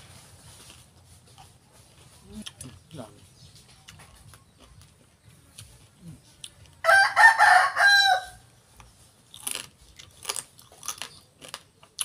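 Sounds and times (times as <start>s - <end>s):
rooster crowing: 6.8s - 8.4s.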